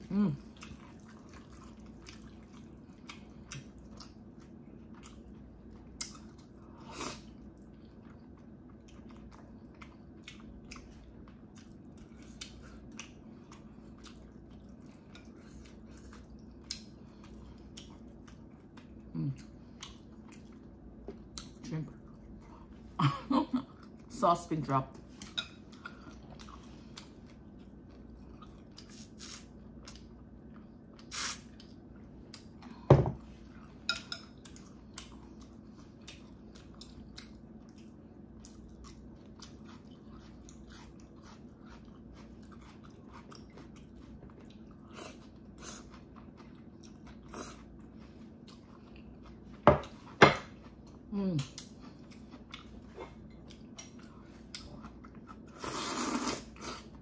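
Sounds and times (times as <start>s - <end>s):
faint steady hum: 0.0s - 57.0s
chewing: 0.4s - 23.0s, 24.9s - 57.0s.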